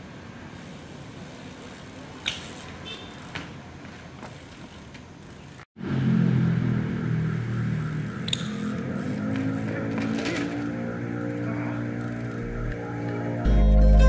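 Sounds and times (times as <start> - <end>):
tyres rolling on asphalt: 0.0 - 5.7, 6.6 - 13.4
sharp metallic click: 8.2 - 8.6
loud low hum: 10.7 - 14.0.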